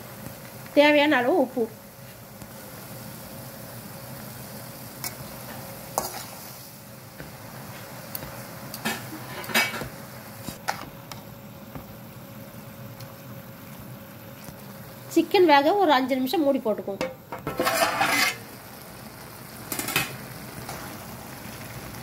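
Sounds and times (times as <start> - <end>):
food sizzling: 0.0 - 22.0
metal spatula scraping a pan: 5.1 - 6.5, 17.4 - 18.5.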